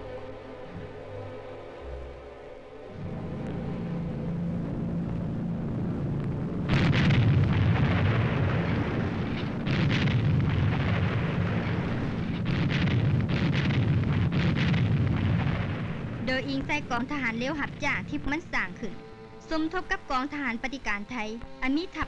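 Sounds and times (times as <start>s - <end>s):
steady low rumble: 2.8s - 22.0s
explosions: 6.0s - 18.4s.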